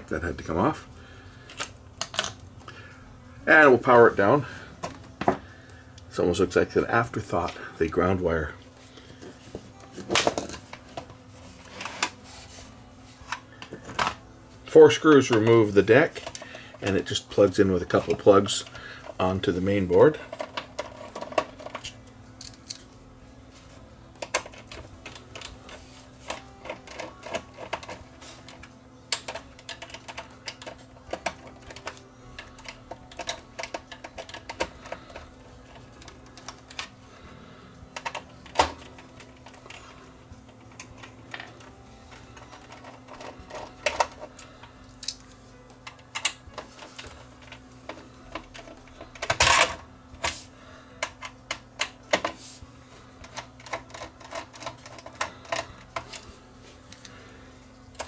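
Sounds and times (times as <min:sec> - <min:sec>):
steady low hum: 0:00.0 - 0:58.0
screwdriver and metal parts clicking: 0:20.3 - 0:22.9, 0:40.6 - 0:45.2, 0:53.2 - 0:57.1.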